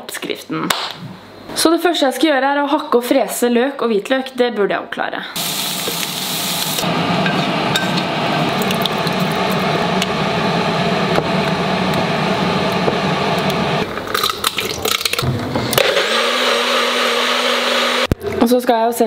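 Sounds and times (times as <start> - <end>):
soup sizzling in a saucepan: 5.4 - 9.7
blender motor humming: 5.4 - 13.9, 15.3 - 18.2.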